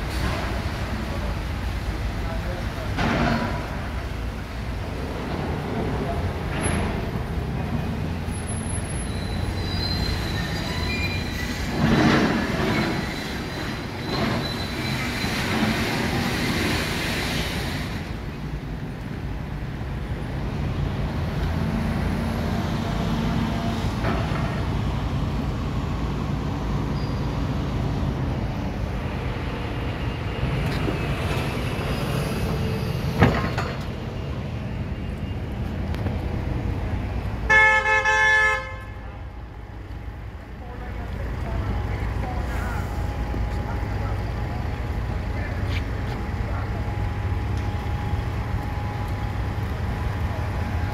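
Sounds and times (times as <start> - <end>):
traffic rumble on wet roads: 0.0 - 50.9
thin high squeal: 8.7 - 11.7, 12.7 - 15.6
vehicle horn: 37.5 - 39.0.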